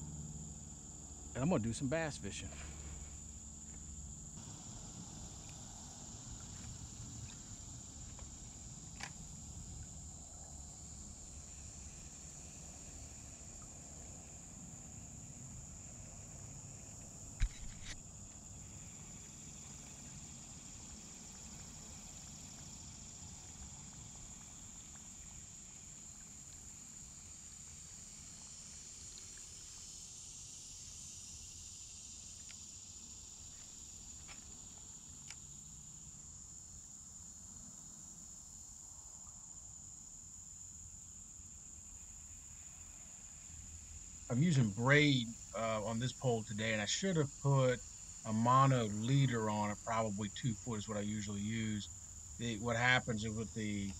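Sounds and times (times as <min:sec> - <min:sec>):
low background rumble: 0:00.0 - 0:17.8, 0:44.3 - 0:53.9
insects chorus: 0:00.0 - 0:53.9.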